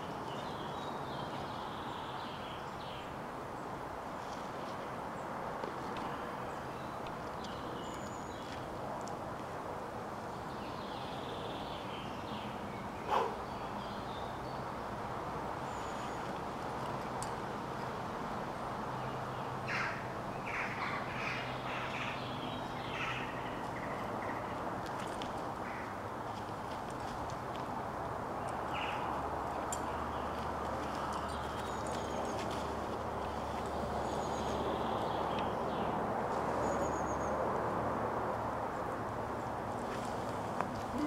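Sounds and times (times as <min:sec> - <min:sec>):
birds calling: 0:10.5 - 0:14.6, 0:19.0 - 0:26.6.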